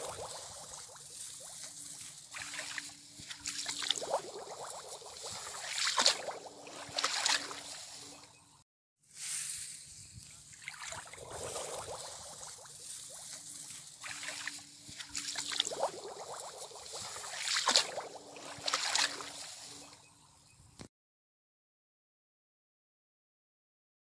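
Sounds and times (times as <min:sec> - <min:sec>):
water sloshing and splashing: 0:00.0 - 0:08.6, 0:10.4 - 0:20.3.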